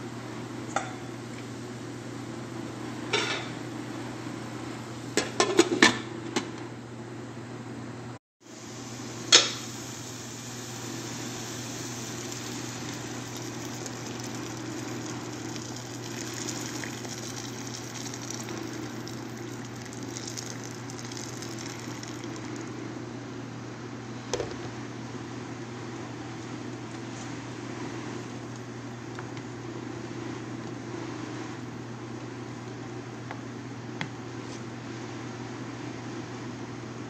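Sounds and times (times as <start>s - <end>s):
broth boiling in a pot: 8.4s - 23.2s.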